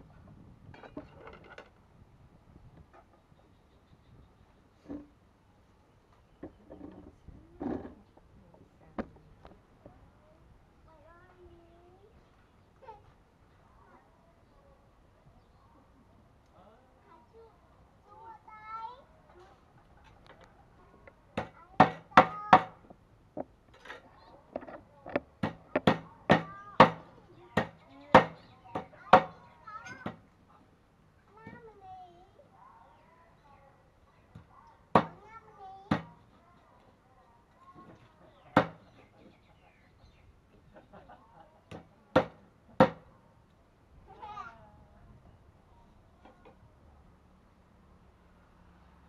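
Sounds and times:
cleaver chopping on wooden block: 0:21.4 - 0:22.8, 0:25.2 - 0:29.4, 0:35.0 - 0:35.2, 0:38.6 - 0:38.8, 0:41.7 - 0:43.0
knife chopping on wooden block: 0:25.2 - 0:27.0.

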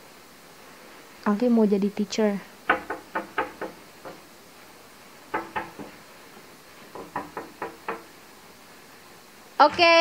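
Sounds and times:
knuckles knocking on wooden door: 0:02.7 - 0:04.3, 0:05.3 - 0:06.0, 0:06.9 - 0:08.2.

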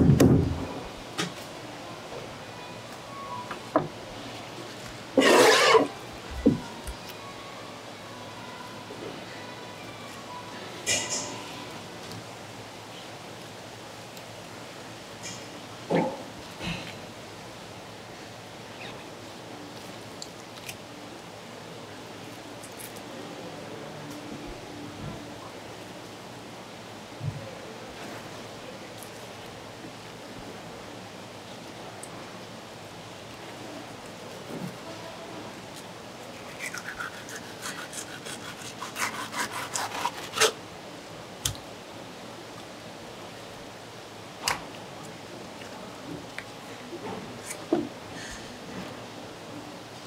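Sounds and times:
knife scraping on cutting board: 0:05.2 - 0:05.9
knife slicing fish: 0:36.5 - 0:40.6.

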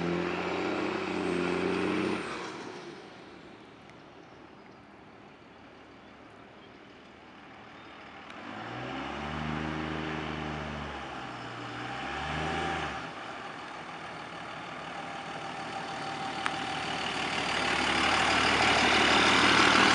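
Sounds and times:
diesel truck engine revving: 0:00.0 - 0:03.2, 0:08.2 - 0:19.9.

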